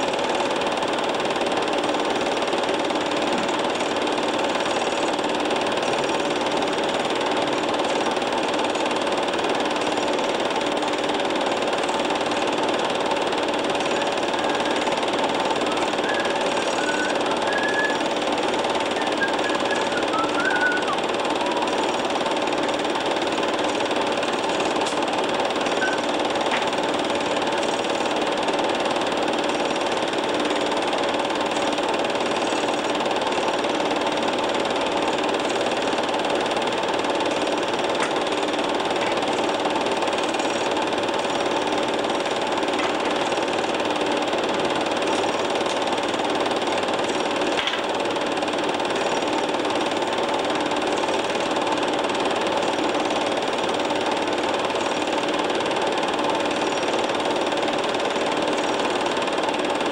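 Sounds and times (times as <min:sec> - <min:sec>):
machine whirring and knocking: 0:00.0 - 0:59.9.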